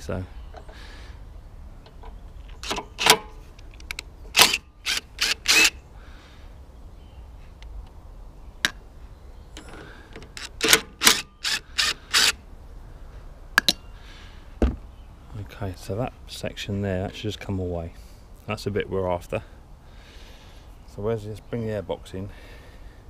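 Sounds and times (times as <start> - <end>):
cordless drill bursts: 4.3 - 5.8, 10.4 - 12.4.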